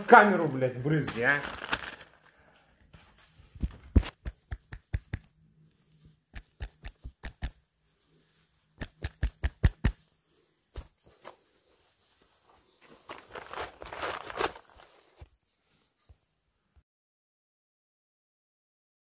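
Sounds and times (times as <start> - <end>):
fingers tapping smartphone: 4.1 - 5.3, 6.3 - 7.6.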